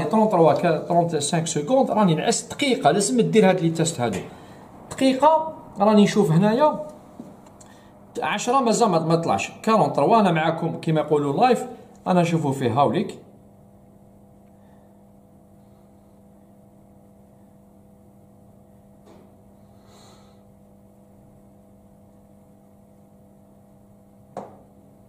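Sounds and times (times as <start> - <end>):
boiler plant room hum: 0.0 - 25.0.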